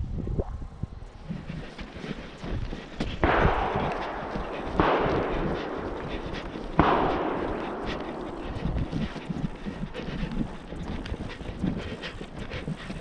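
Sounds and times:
distant gunshots with rolling echo: 0:03.2 - 0:08.8.

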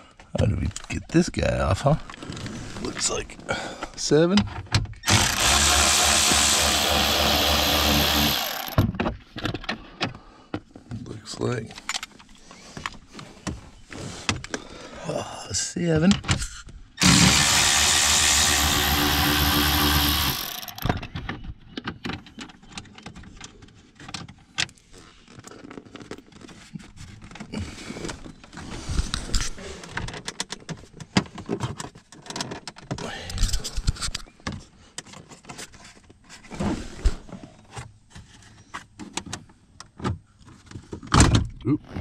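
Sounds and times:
power tool motor spinning: 0:05.0 - 0:08.8, 0:17.0 - 0:20.9.

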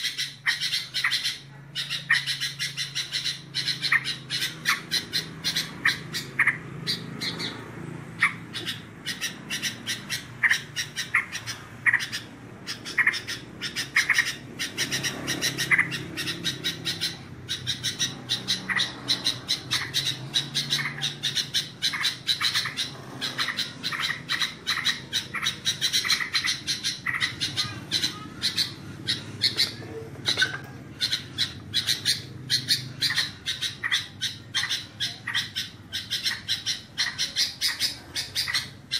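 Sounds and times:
bird singing and chattering: 0:00.0 - 0:38.9.

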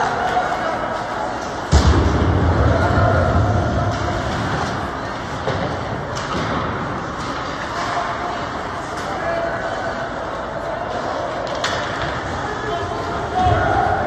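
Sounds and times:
crowd chatter: 0:00.0 - 0:14.0
loud thud on rink boards: 0:01.7 - 0:07.4.

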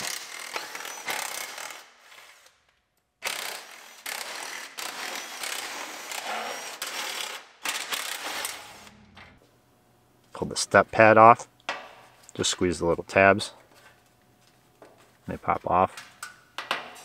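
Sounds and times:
cordless impact driver running: 0:00.0 - 0:02.5, 0:03.2 - 0:08.9.

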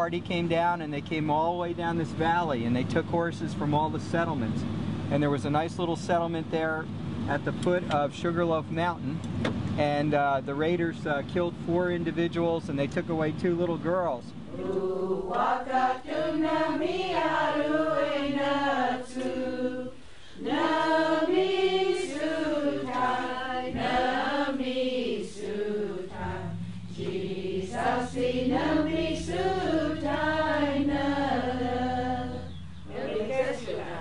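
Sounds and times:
low hum: 0:00.0 - 0:34.0
voices singing unaccompanied: 0:09.8 - 0:34.0.

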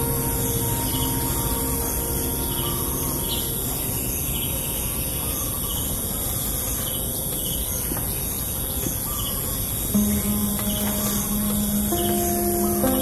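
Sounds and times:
high-pitched insect drone: 0:00.0 - 0:05.9
faint bird chirps: 0:00.0 - 0:13.0
low background noise: 0:00.0 - 0:13.0.

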